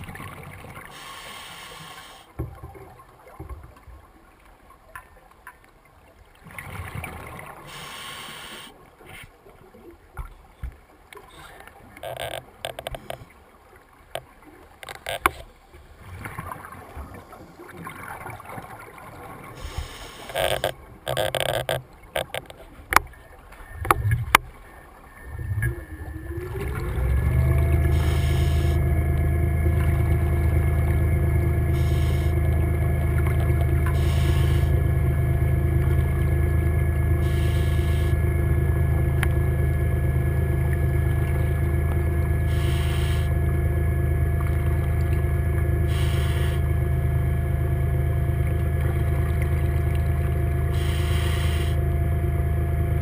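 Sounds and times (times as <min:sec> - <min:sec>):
underwater scooter motor whine: 0:00.0 - 0:04.4, 0:05.7 - 0:09.0, 0:09.7 - 0:53.0
short bursts of noise: 0:00.9 - 0:02.3, 0:07.7 - 0:08.8, 0:12.0 - 0:13.3, 0:19.6 - 0:22.7, 0:27.9 - 0:28.8, 0:31.8 - 0:32.4, 0:33.9 - 0:34.8, 0:37.2 - 0:38.2, 0:42.5 - 0:43.3, 0:45.9 - 0:46.6, 0:50.7 - 0:51.8.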